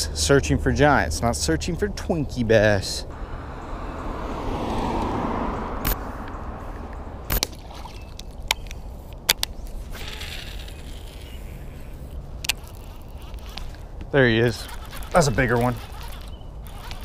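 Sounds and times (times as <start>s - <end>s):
wind rumble: 3.0s - 14.2s
fishing reel clicks and knocks: 7.3s - 13.8s, 14.4s - 17.0s.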